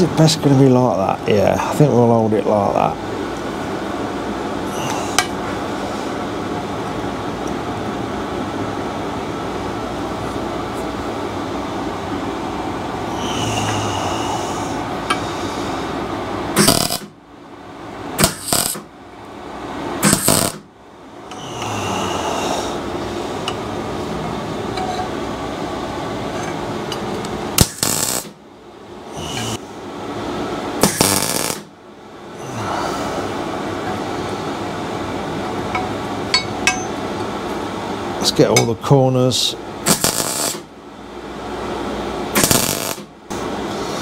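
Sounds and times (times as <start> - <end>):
welding arc crackling: 16.5 - 17.2, 18.2 - 18.9, 20.0 - 20.7, 27.6 - 28.4, 30.8 - 31.7, 39.8 - 40.7, 42.3 - 43.1
welder steady hiss: 16.6 - 17.1, 18.2 - 18.8, 20.0 - 20.6, 27.6 - 28.4, 30.8 - 31.7, 39.8 - 40.7, 42.3 - 43.1.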